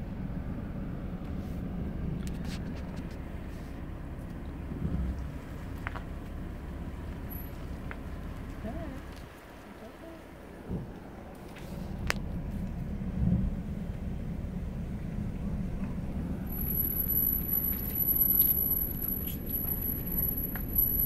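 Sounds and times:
car engine and tyres rumbling: 0.0 - 21.0
high-pitched whine: 16.0 - 21.0.

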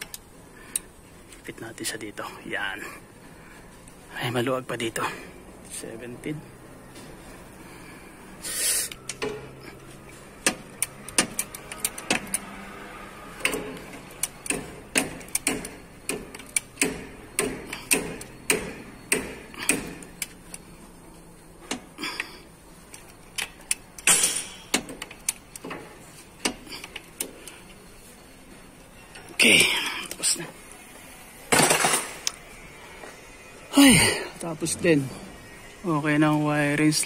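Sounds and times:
socket ratchet clicking: 10.4 - 12.6, 13.4 - 20.6, 22.9 - 25.8
metal tools clanking: 23.0 - 27.7, 31.5 - 32.4.

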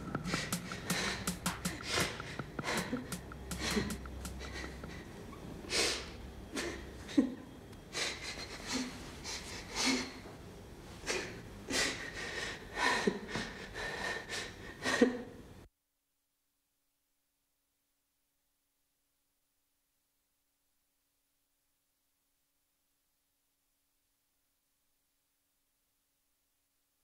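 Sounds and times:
woman sobbing: 0.3 - 5.1, 5.7 - 10.2, 11.0 - 15.4.

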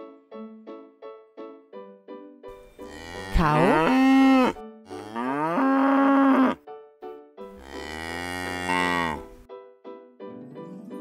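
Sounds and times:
cow mooing: 2.8 - 6.6, 7.5 - 9.3.

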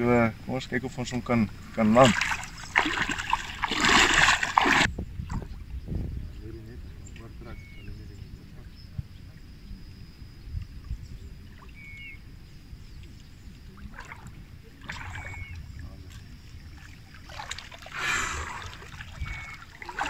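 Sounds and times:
water splashing and sloshing: 0.9 - 5.8, 10.6 - 20.0.

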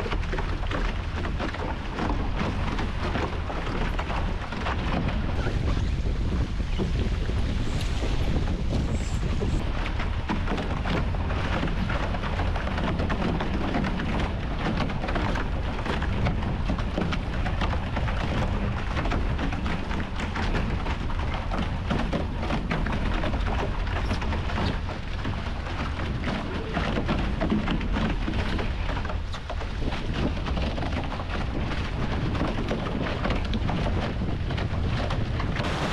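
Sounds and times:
water splashing along hull: 0.0 - 35.9
wind buffeting microphone: 0.0 - 35.9.

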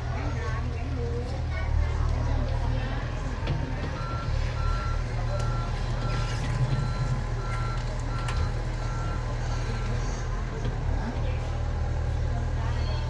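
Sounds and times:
diesel engine running: 0.0 - 13.0
warning alarm beeping: 4.0 - 6.2.

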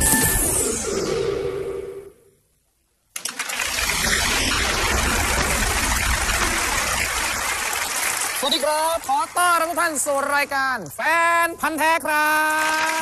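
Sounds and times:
studio audience applauding: 3.2 - 10.7, 12.2 - 13.0.

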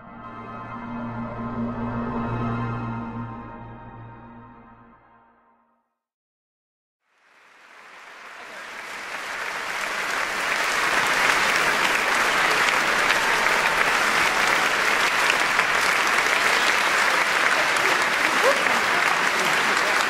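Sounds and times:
audience applauding: 7.1 - 20.0.

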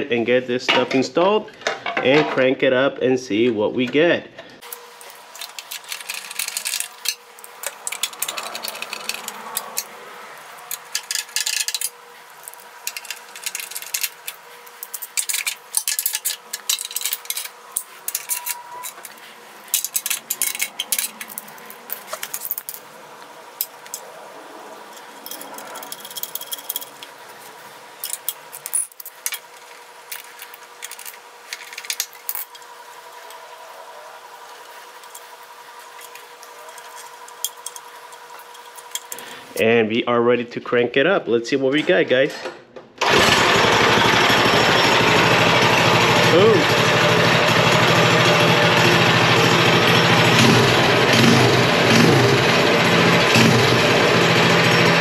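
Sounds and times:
metal tools clinking: 4.6 - 22.9, 24.8 - 32.6, 35.9 - 39.3.

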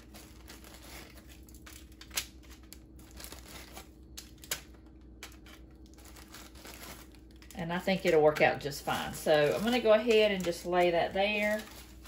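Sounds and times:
plastic sleeve crinkling: 0.0 - 12.0.

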